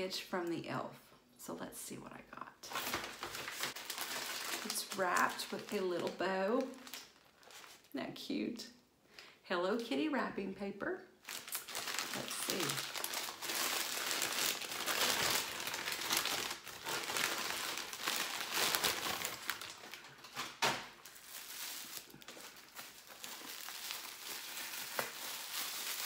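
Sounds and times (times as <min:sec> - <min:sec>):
tissue paper rustling: 0:02.7 - 0:07.9, 0:11.2 - 0:26.0
wrapping paper crinkling: 0:02.7 - 0:08.0, 0:11.2 - 0:26.0.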